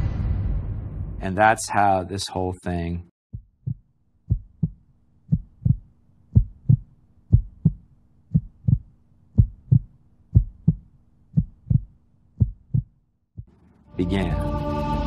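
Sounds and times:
heartbeat thumps: 3.3 - 13.5
faint low hum: 3.4 - 14.2.

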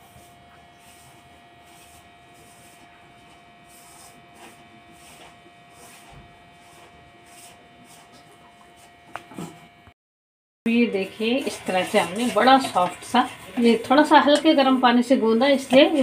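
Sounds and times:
hands mixing flour in steel bowl: 11.2 - 16.0.

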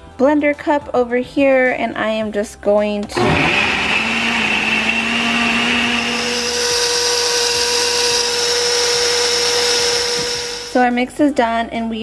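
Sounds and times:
blender motor running: 3.2 - 10.8.

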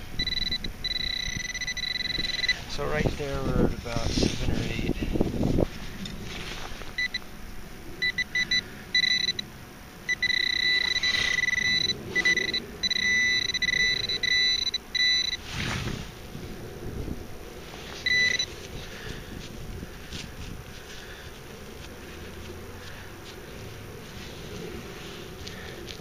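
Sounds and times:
metal detector beeping: 0.1 - 2.9, 7.0 - 7.3, 8.0 - 9.5, 10.1 - 15.5, 17.9 - 18.7
scrape of soil: 3.0 - 4.8, 5.6 - 6.9, 11.0 - 11.4, 15.4 - 16.2.

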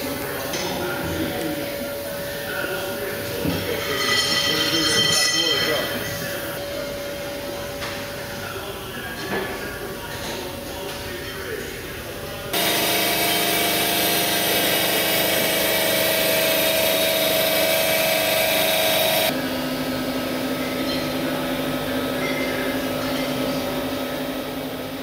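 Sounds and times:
low machine hum: 12.5 - 25.0
hydraulic pump whining hiss: 12.6 - 19.3.

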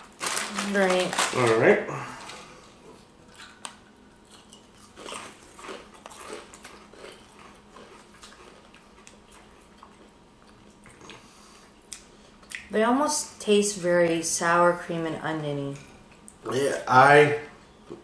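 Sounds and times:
chips crunching: 0.0 - 2.4, 3.3 - 11.2.

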